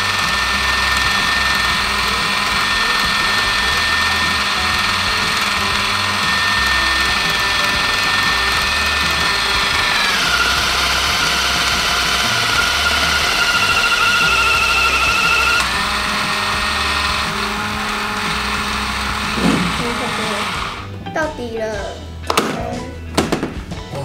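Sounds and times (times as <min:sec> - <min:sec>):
toy electric motor whining: 0:00.0 - 0:20.9.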